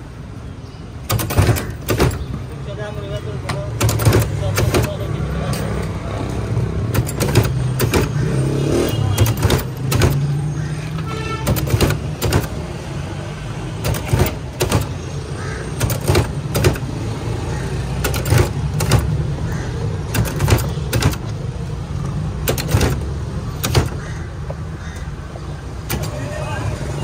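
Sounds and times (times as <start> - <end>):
road traffic rumble: 0.0 - 27.0
sharp clicks and knocks: 1.0 - 2.5, 3.4 - 12.7, 13.8 - 15.1, 15.8 - 17.1, 18.0 - 25.1, 25.8 - 26.2.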